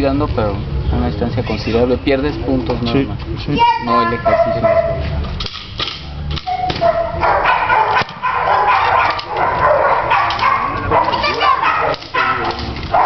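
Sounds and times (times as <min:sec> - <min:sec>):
dogs barking and yipping: 0:03.9 - 0:05.3, 0:06.1 - 0:13.0.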